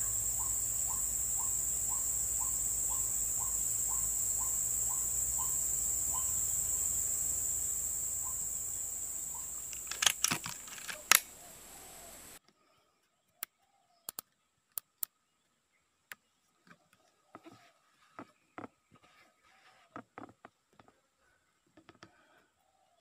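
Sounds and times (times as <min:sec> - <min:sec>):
high-pitched insect drone: 0:00.0 - 0:12.4
sharp clicks: 0:00.1 - 0:12.4.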